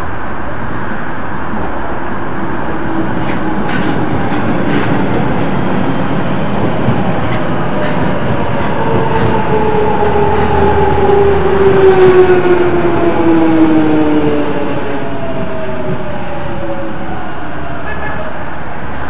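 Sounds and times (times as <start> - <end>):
train wheels clicking over rail joints: 3.0 - 10.9.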